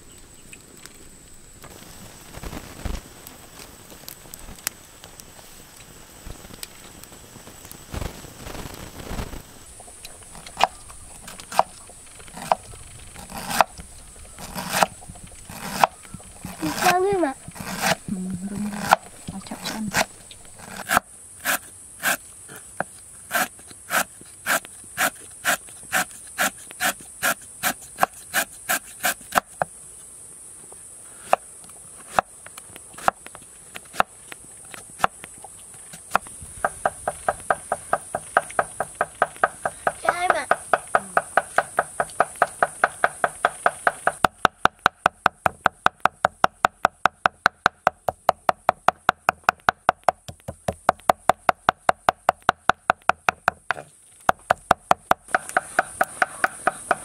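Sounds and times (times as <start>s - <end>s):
high hiss of insects: 0.0s - 46.0s, 53.5s - 57.0s
knife chopping on wooden board: 18.7s - 19.0s, 55.2s - 57.0s.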